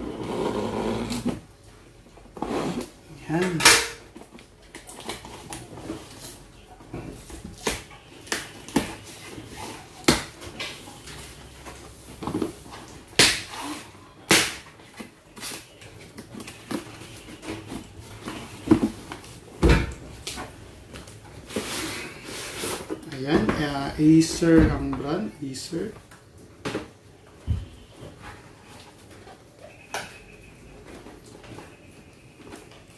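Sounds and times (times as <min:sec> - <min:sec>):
sharp cardboard cracks: 0:13.2 - 0:13.6, 0:14.3 - 0:14.8.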